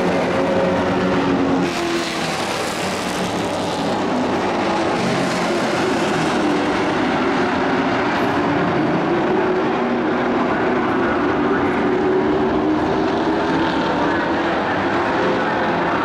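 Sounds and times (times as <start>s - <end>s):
racing truck engines: 0.0s - 16.0s.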